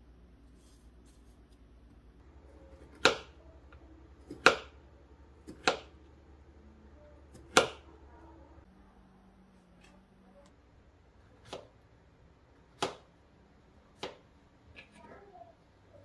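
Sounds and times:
knife slicing fruit: 2.7s - 3.4s, 4.2s - 4.8s, 5.4s - 6.0s, 7.3s - 7.9s, 11.4s - 11.8s.

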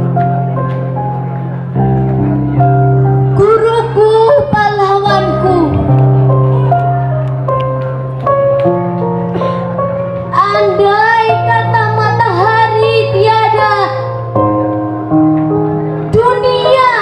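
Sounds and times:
slow music of sustained chords: 0.0s - 17.0s
woman singing: 10.4s - 14.0s.

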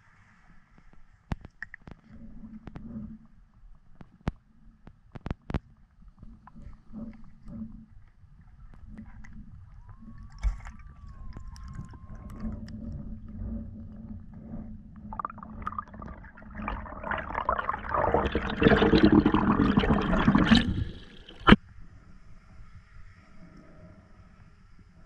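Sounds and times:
water gurgling and rushing: 15.0s - 21.6s.

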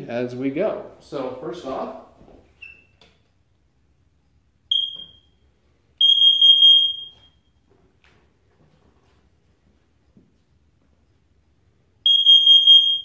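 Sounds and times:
alarm beeping: 4.7s - 5.4s, 6.0s - 7.6s, 12.0s - 13.0s.

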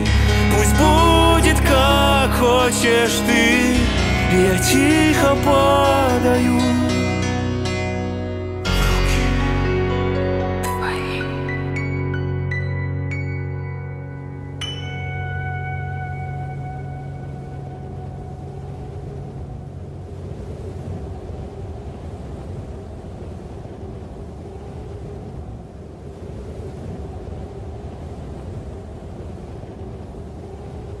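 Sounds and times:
faint held tone: 11.8s - 19.7s
rushing wind: 14.5s - 31.0s.

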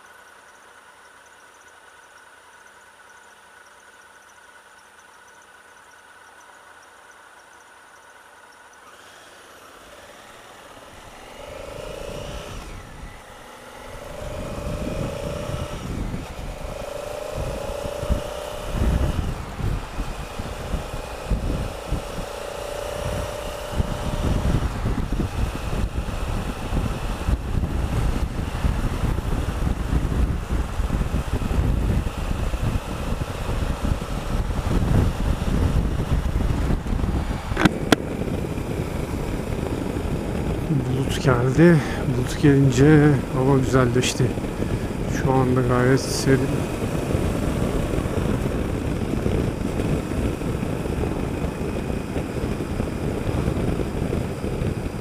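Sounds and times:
motorcycle engine accelerating: 0.0s - 55.0s
wind buffeting on microphone: 11.3s - 13.2s, 13.8s - 55.0s
sharp clicks: 37.5s - 38.1s.

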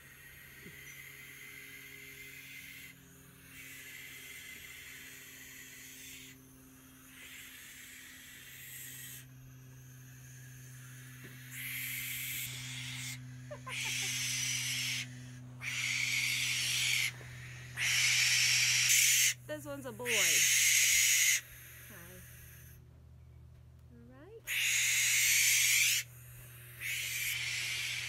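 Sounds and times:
young owls hissing: 0.0s - 22.8s, 24.5s - 28.0s.

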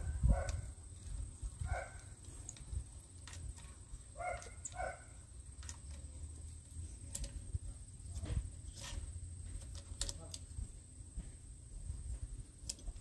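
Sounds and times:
dog barking: 0.3s - 0.6s, 1.6s - 2.1s, 4.2s - 5.2s.

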